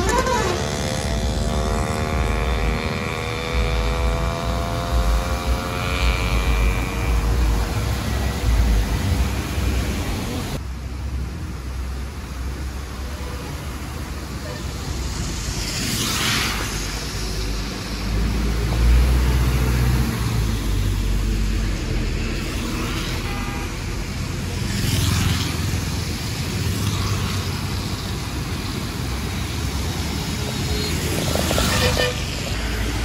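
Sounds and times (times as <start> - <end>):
heavy vehicle engine rumbling: 0.0 - 15.8, 25.6 - 33.0
tyres hissing on wet road: 0.0 - 33.0.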